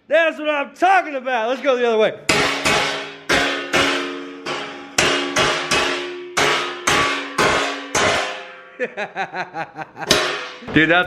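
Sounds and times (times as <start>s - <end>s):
hammer striking steel pipe: 2.3s - 8.8s, 10.1s - 10.8s
steel plate ringing: 2.3s - 8.9s, 10.1s - 10.8s.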